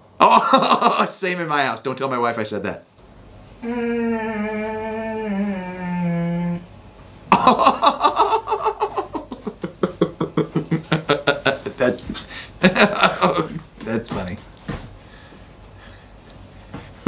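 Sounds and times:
man laughing rapidly: 0.2 - 1.1, 7.3 - 13.6
man's drawn-out ooh: 3.6 - 6.7.

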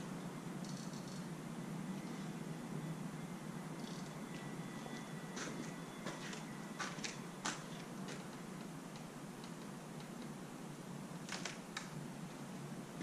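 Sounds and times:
steady low hiss: 0.0 - 13.0.

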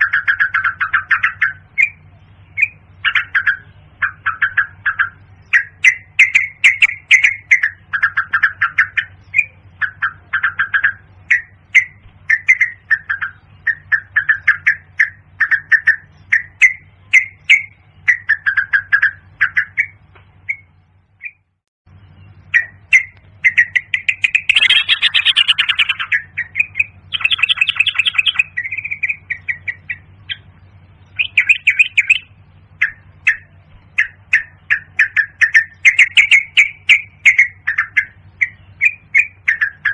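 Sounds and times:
bird chirping phrases: 0.0 - 39.9
steady low hum: 0.0 - 39.9.

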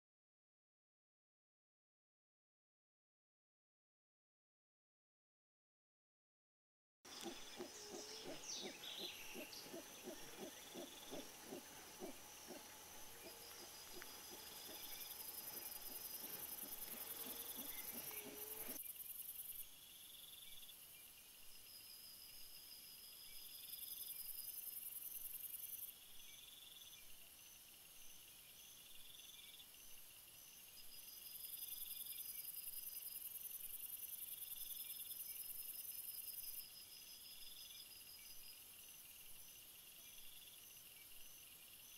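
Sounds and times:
cicada buzzing: 7.1 - 18.8
crickets chirping: 7.1 - 41.9
howler monkeys grunting: 7.2 - 18.8.

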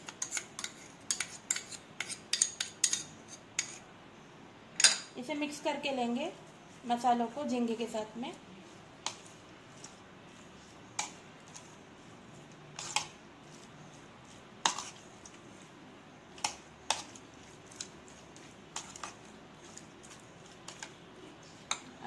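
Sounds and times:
soft squishing: 6.0 - 22.0.

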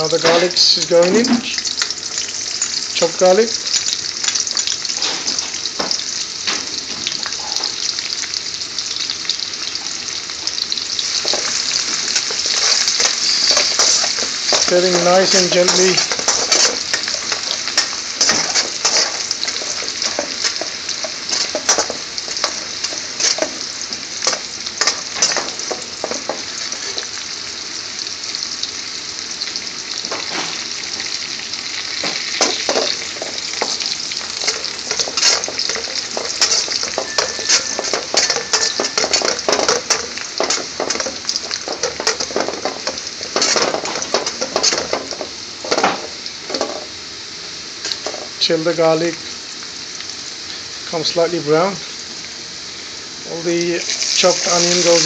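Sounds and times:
garlic sizzling in oil: 0.0 - 55.0
metal spoon scraping a wok: 11.2 - 27.0, 32.4 - 46.8.

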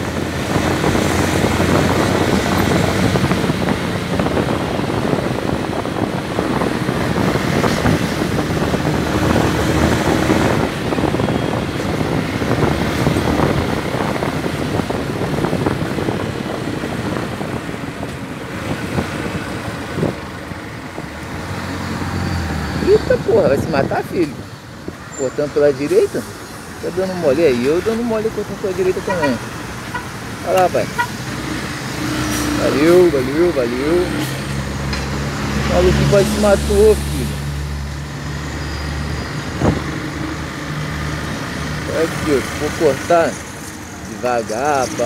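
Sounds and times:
wind on microphone: 0.0 - 25.1, 39.0 - 45.0.

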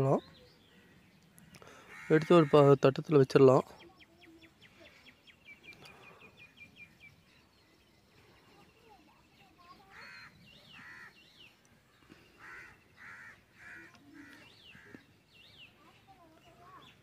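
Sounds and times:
short repeated bird calls: 9.6 - 15.2.

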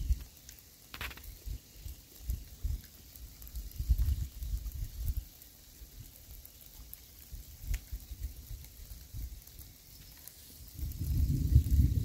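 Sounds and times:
light rain patter: 0.0 - 12.0
wind gusts on microphone: 10.6 - 12.0.

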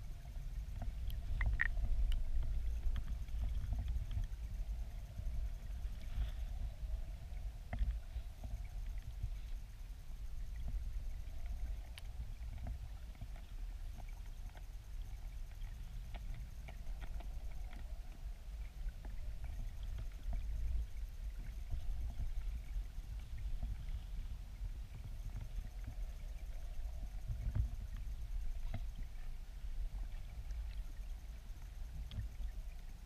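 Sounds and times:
underwater river current rumble: 0.0 - 33.0
faint clicks: 0.7 - 4.5, 10.4 - 20.7.

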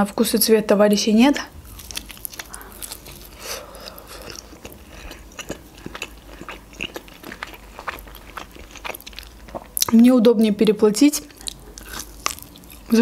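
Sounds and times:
person chewing food: 1.6 - 10.0, 11.2 - 13.0.

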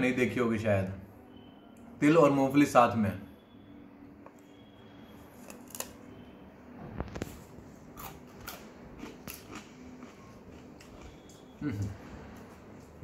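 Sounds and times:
crisp crunching of brittle sweet: 5.4 - 6.0, 7.1 - 11.6.

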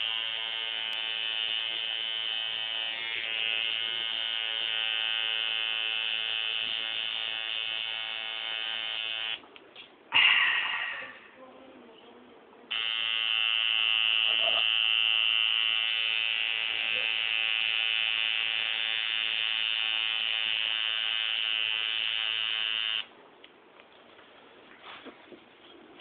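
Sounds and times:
tattoo machine buzzing: 0.0 - 9.4, 12.7 - 23.1.

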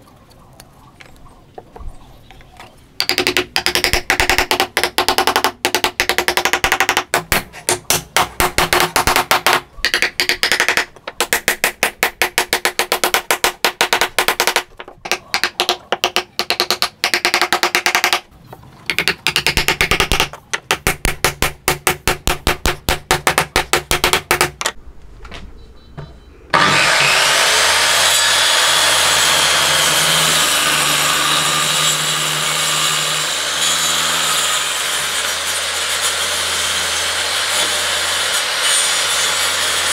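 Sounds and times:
circular saw cutting wood: 26.5 - 39.9.

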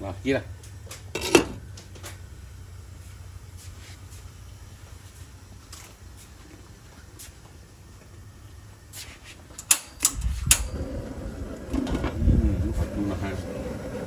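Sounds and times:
gas burner rumble: 0.0 - 14.0
glass lid clanking: 1.2 - 1.6.

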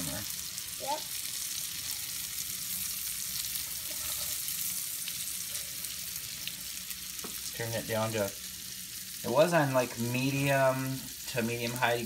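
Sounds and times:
mushrooms sizzling in oil: 0.0 - 12.0.

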